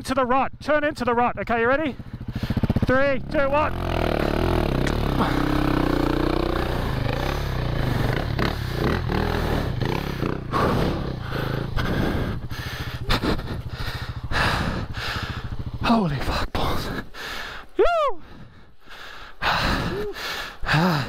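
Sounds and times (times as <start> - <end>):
dirt bike engine under load: 2.0 - 11.8.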